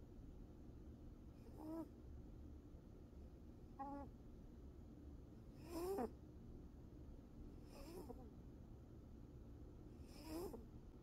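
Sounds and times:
cat snoring: 1.5s - 1.9s, 5.6s - 6.1s, 7.6s - 8.2s, 10.0s - 10.6s.

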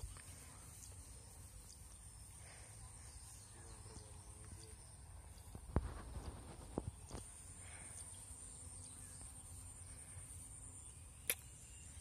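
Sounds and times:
sharp click: 11.2s - 11.5s.

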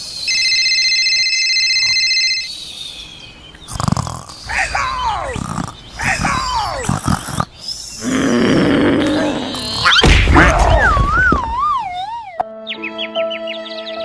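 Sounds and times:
long rough growl: 3.7s - 10.0s
falling cries: 4.5s - 5.4s.

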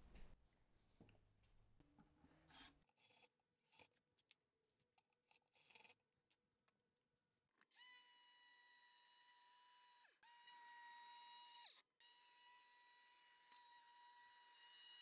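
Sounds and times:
jigsaw motor whining: 7.7s - 15.0s.

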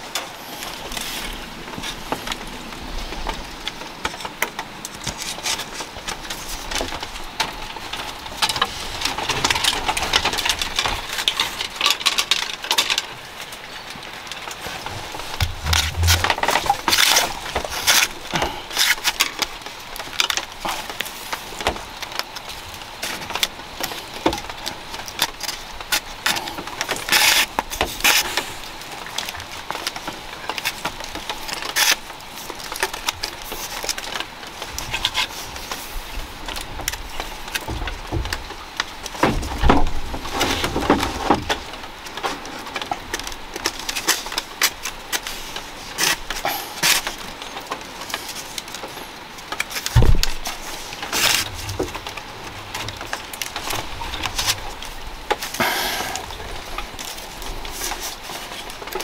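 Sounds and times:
bamboo strips clicking and rustling: 0.0s - 59.0s
low thump: 15.4s - 16.4s.

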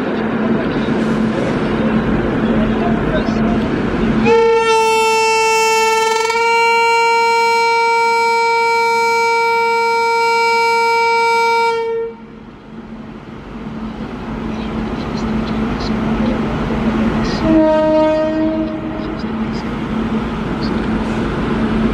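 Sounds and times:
train rolling noise: 0.0s - 21.9s
train horn long blast: 4.2s - 12.4s, 17.3s - 19.2s.

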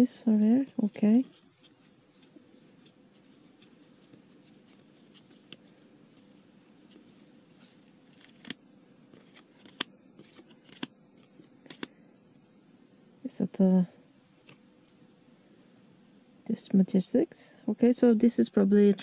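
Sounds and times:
cards rustling: 0.3s - 11.9s
trading cards snapping: 8.1s - 8.6s, 9.2s - 10.9s, 11.6s - 11.9s.

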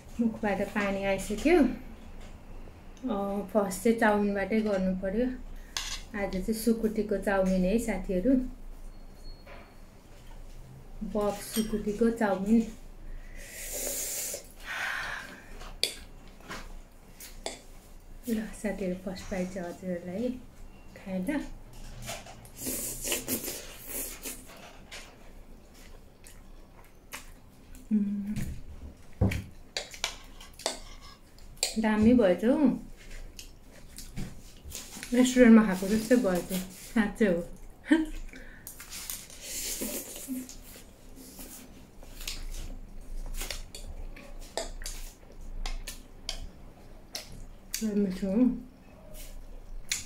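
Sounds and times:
slurping and chewing noodles: 22.4s - 24.5s.

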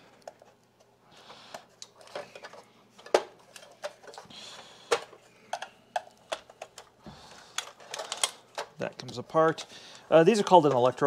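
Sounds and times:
plastic parts clicking and knocking: 1.5s - 11.0s.

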